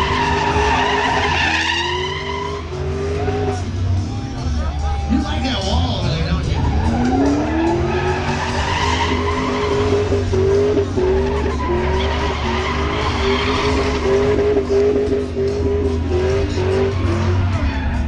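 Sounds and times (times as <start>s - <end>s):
car engine revving: 0.0s - 18.0s
tyres squealing: 6.4s - 18.0s.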